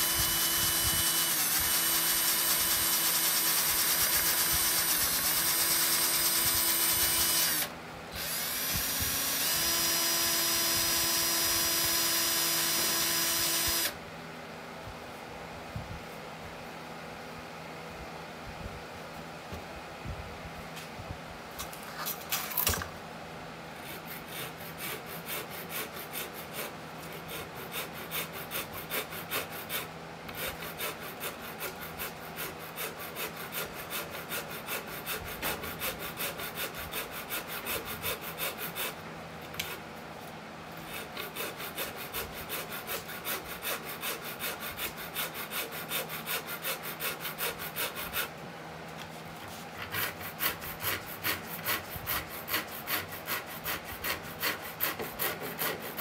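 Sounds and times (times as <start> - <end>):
hand sanding wood: 23.8 - 39.0, 40.8 - 56.0.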